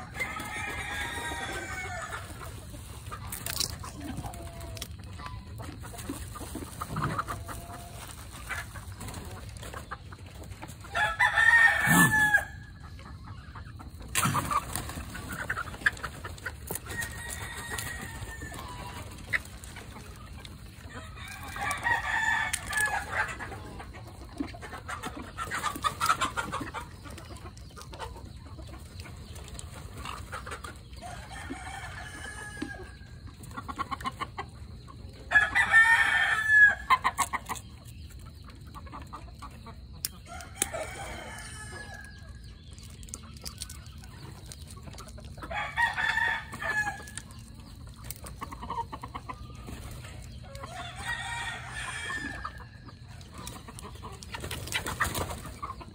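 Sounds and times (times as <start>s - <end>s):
rooster crowing: 0.0s - 2.2s, 10.9s - 12.6s, 17.0s - 19.0s, 45.5s - 47.1s, 50.6s - 52.6s
chickens clucking: 0.0s - 55.9s.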